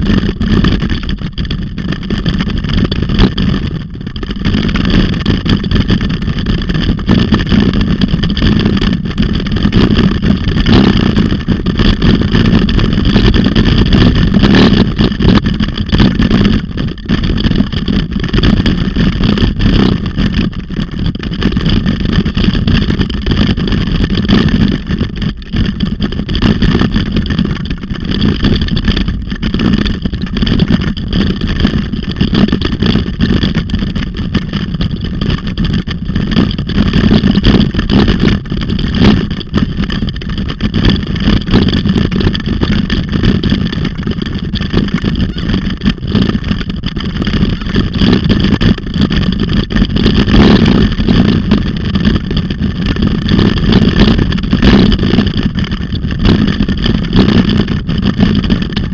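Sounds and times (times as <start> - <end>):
wheels rattling over dirt trail: 0.0 - 58.9
wind rush on microphone: 0.0 - 58.9.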